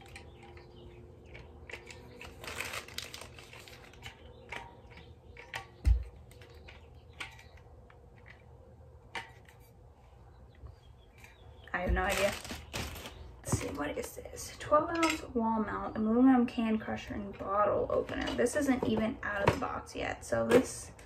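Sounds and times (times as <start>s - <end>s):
plastic packaging crinkling: 0.0s - 5.6s, 11.8s - 13.6s.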